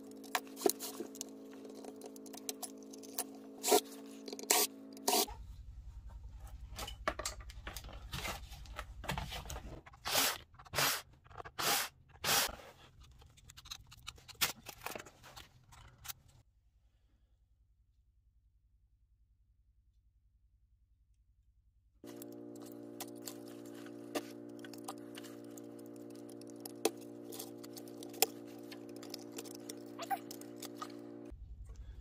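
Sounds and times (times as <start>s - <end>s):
hard drive parts scraping and knocking: 0.0s - 5.3s, 22.1s - 31.3s.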